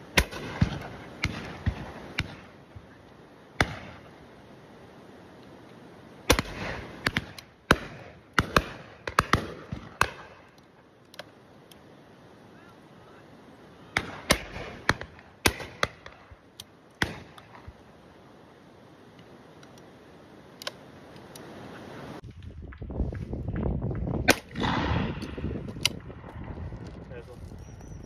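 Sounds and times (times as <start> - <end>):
shotguns firing: 0.1 - 2.6, 3.6 - 4.2, 6.3 - 10.5, 13.9 - 16.4, 17.0 - 17.8, 24.2 - 26.3.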